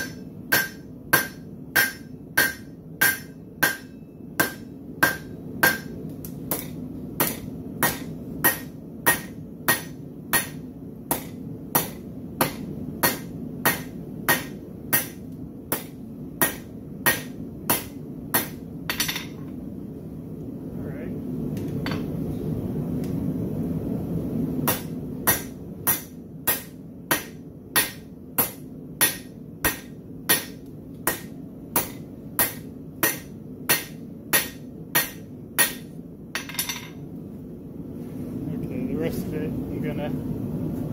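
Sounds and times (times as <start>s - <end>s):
hammer forging steel on anvil: 0.0s - 19.4s, 24.6s - 37.0s
low hum: 0.1s - 40.9s.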